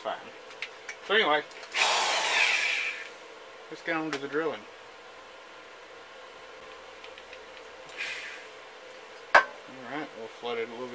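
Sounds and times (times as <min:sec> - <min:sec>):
faint steady hum: 0:00.0 - 0:10.9
fan hissing: 0:01.1 - 0:04.6, 0:06.9 - 0:10.9.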